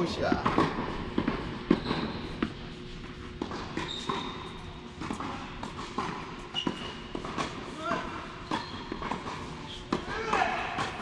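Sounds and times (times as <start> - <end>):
tennis balls bouncing: 0.0 - 11.0.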